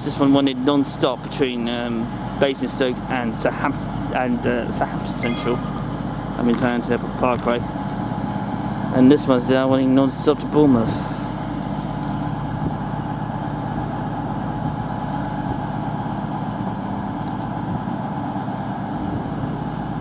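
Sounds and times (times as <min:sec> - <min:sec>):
train diesel engines idling: 0:00.0 - 0:20.0.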